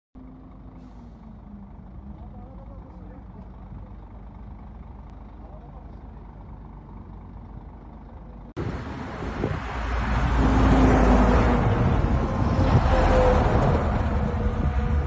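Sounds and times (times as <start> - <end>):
faint engine hum: 0.2 - 9.0
low traffic rumble: 0.2 - 15.0
road and wind noise of vehicles: 0.2 - 15.0.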